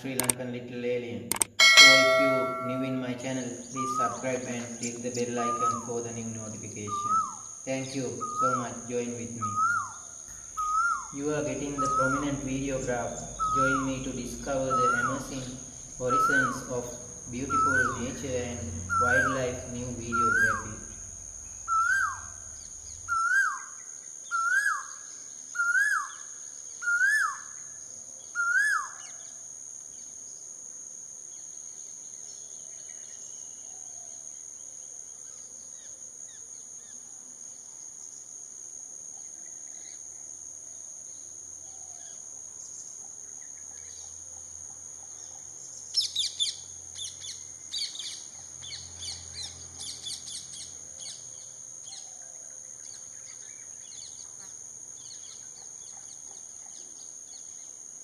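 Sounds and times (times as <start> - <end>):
high-pitched drone: 1.6 - 3.2
rapid high chirping: 1.6 - 3.2, 10.3 - 23.1
bird rising whistled call: 9.5 - 11.1, 11.7 - 12.3, 13.3 - 16.7, 17.5 - 18.2, 20.0 - 20.8, 21.7 - 22.4, 23.1 - 25.0.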